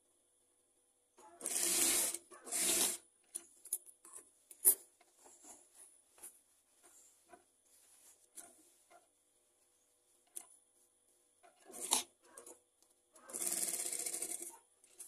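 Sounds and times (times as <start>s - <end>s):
fabric rustling: 5.1s - 11.3s.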